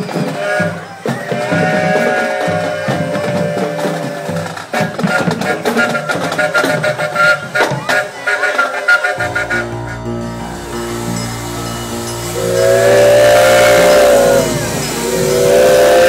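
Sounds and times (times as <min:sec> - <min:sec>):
marching drums: 0:00.0 - 0:08.4
woodwinds holding long notes: 0:02.3 - 0:16.0.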